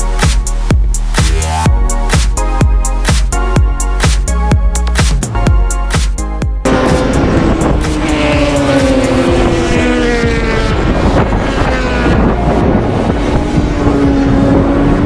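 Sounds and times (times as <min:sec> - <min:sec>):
race car engines running hard: 0:06.6 - 0:15.0
wind buffeting microphone: 0:06.6 - 0:15.0.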